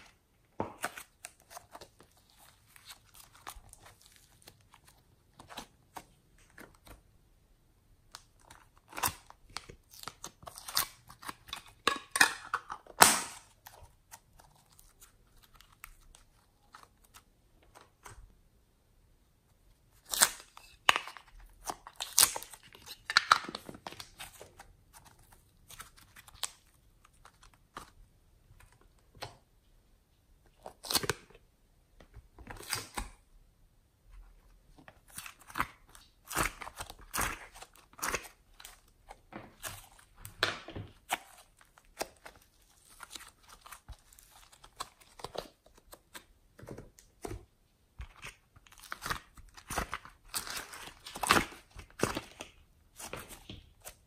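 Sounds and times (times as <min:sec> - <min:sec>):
soft squishes of clay: 0:00.0 - 0:54.0
plastic containers clicking and crinkling: 0:10.7 - 0:13.9, 0:20.8 - 0:26.2.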